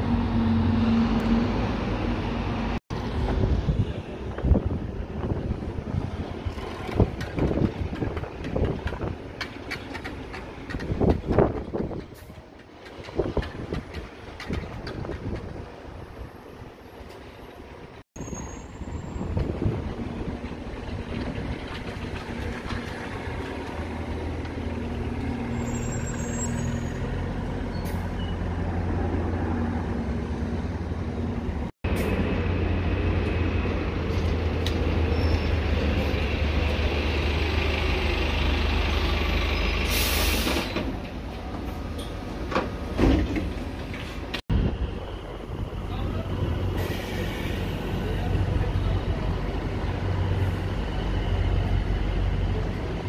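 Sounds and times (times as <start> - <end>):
bus diesel engines droning: 0.0 - 53.0
air brake hiss: 39.8 - 40.8, 46.7 - 48.0.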